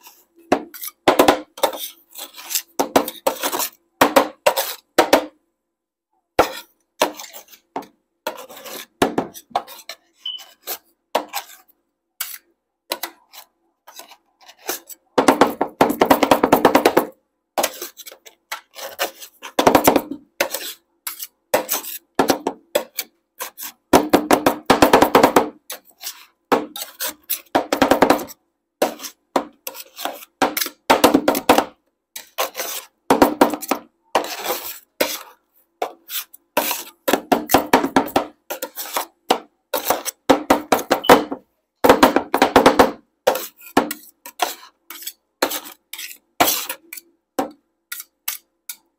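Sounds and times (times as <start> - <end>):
spatulas scraping on steel plate: 0.0 - 4.9, 6.4 - 15.0, 17.6 - 22.1, 25.7 - 27.5, 28.1 - 30.8, 32.2 - 41.2, 43.3 - 47.1, 47.9 - 48.9.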